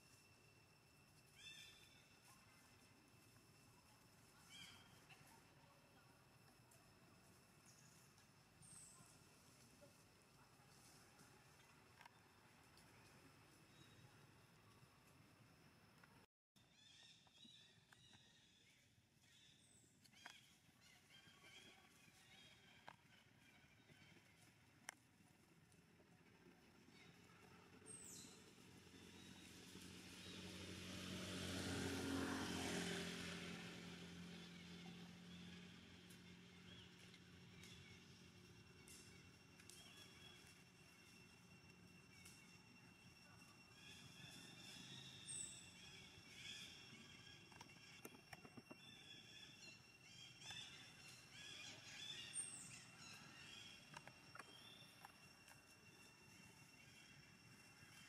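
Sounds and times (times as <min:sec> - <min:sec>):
vehicle passing by: 0:28.4 - 0:37.4.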